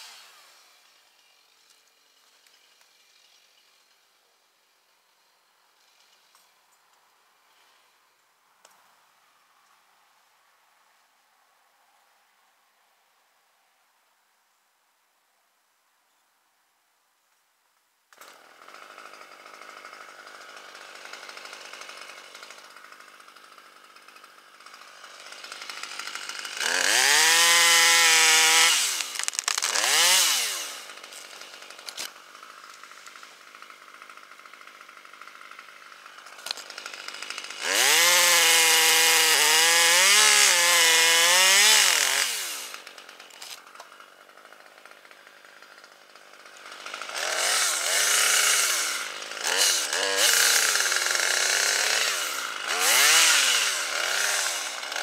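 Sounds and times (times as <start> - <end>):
chainsaw revving: 0.0 - 4.0, 18.1 - 55.0.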